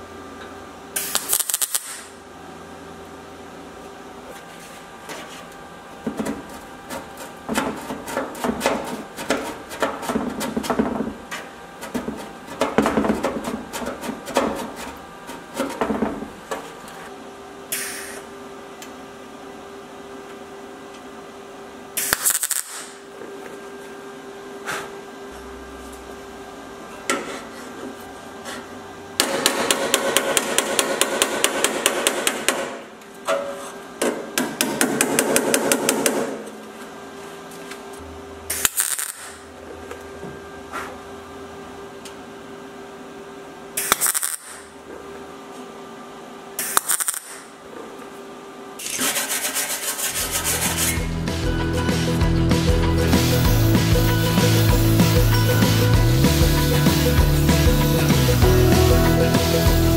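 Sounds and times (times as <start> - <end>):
welder crackling bursts: 1.0 - 2.2, 22.0 - 23.0, 38.5 - 39.4, 43.8 - 44.7, 46.6 - 47.5, 52.9 - 59.9.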